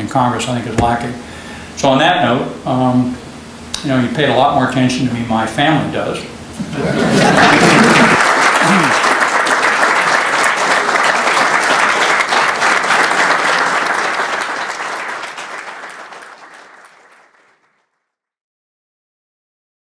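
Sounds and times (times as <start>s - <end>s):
audience applauding: 7.0s - 17.8s.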